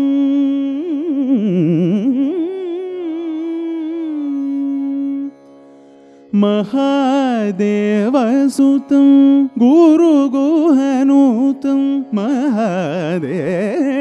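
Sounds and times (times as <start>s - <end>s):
faint tanpura drone: 0.0s - 14.0s
man singing a drawn-out vowel: 6.4s - 14.0s.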